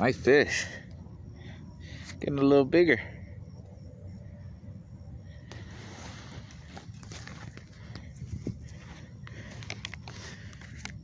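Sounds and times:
footsteps crunching on dry leaves: 5.8s - 9.6s.

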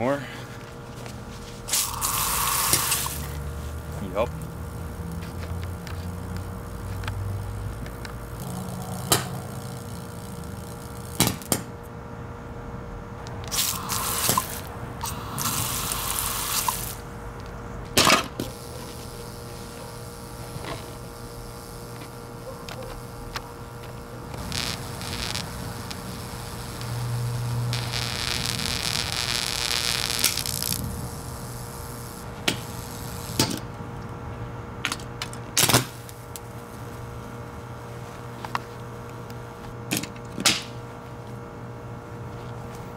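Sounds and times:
hissing from sparking motor: 1.6s - 11.7s, 13.2s - 33.7s, 35.2s - 36.5s
crackling and sharp pops: 1.7s - 3.3s, 4.4s - 11.7s, 13.2s - 17.0s, 17.9s - 33.6s
blender motor humming: 1.7s - 11.5s, 13.2s - 17.6s, 18.2s - 33.6s.

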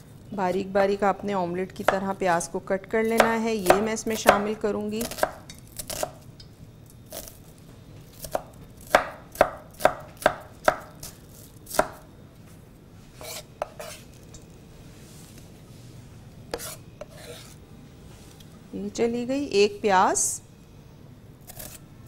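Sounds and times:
knife chopping on wooden board: 8.2s - 11.1s, 11.7s - 12.0s, 13.2s - 14.0s, 16.5s - 17.5s.

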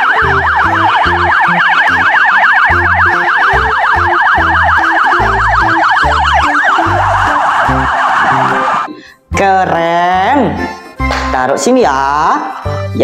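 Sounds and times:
police siren yelping: 0.0s - 9.0s.

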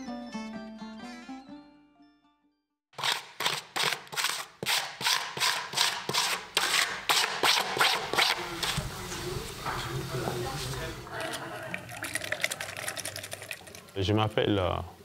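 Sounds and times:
tool scraping wet paint: 3.0s - 8.8s.

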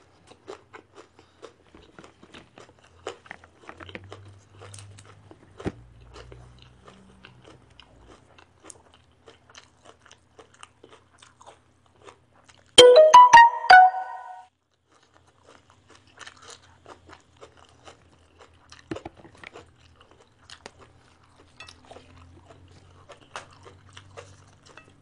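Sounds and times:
person chewing: 0.5s - 12.7s
piano-like music sting: 12.8s - 14.4s.

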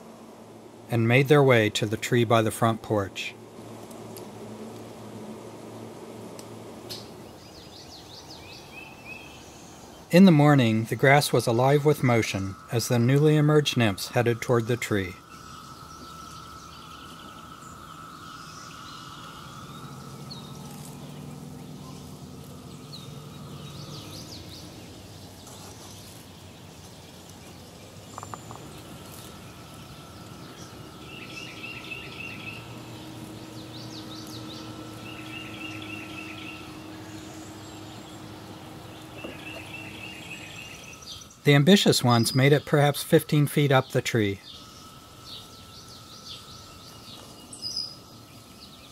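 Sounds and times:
faint steady drone: 0.0s - 48.9s
low hum: 0.0s - 48.9s
songbirds chirping and trilling: 0.0s - 48.9s
bird warbling phrase: 10.1s - 15.4s.

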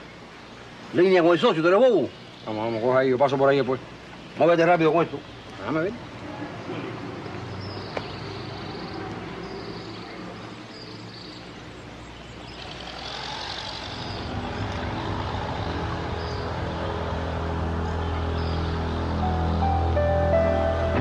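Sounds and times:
outdoor background noise: 0.0s - 21.0s
low music drone: 13.7s - 21.0s.

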